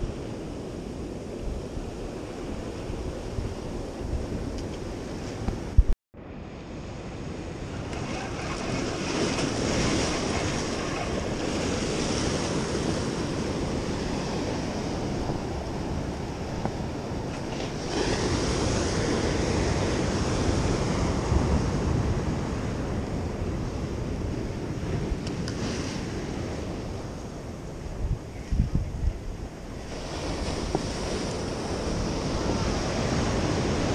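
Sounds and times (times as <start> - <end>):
wind buffeting microphone: 0.0 - 6.0, 7.2 - 33.9
surf washing against rocks: 7.4 - 24.2, 29.6 - 33.9.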